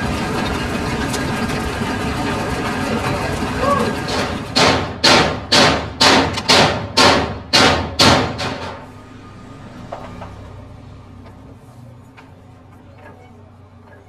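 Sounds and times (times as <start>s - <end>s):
heavy blows on metal: 4.0s - 8.9s.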